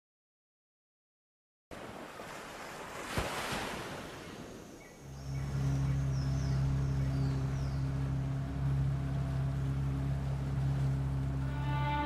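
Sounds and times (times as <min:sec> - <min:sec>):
waves washing: 0:01.7 - 0:12.0
wind: 0:01.7 - 0:12.0
low droning music: 0:04.9 - 0:12.0.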